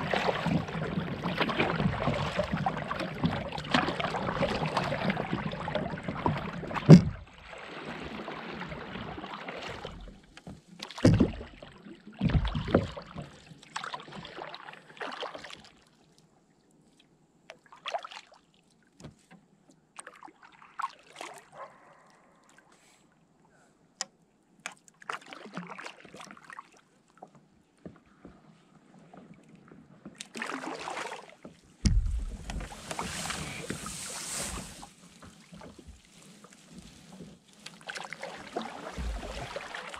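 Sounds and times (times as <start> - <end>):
paddle splashing in water: 0.0 - 15.9, 20.0 - 22.6, 24.7 - 39.9
sharp knocks: 31.8 - 32.6
reeds scraping along board: 32.2 - 39.9.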